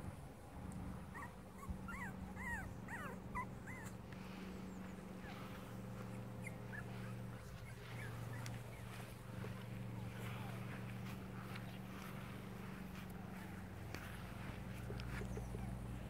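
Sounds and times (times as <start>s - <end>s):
steady low hum: 0.0s - 16.0s
puppies whimpering and yipping: 1.1s - 4.0s, 4.6s - 9.7s, 13.3s - 16.0s.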